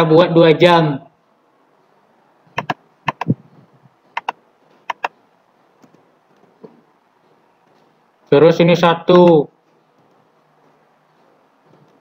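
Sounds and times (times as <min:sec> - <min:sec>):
computer mouse clicks: 0:02.6 - 0:03.4, 0:04.2 - 0:05.1.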